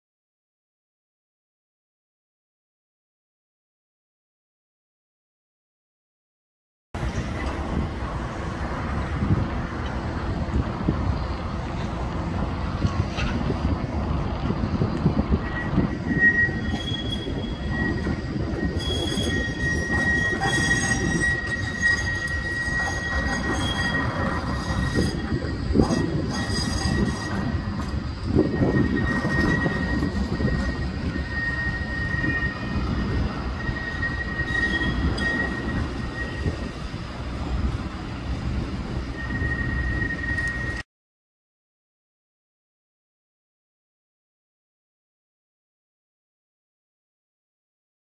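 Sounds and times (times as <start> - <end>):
tram wheels squealing on rails: 7.0 - 40.9.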